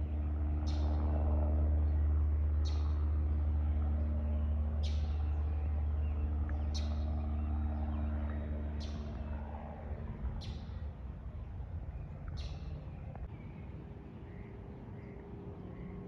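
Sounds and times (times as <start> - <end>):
airplane rumbling overhead: 0.0 - 16.0.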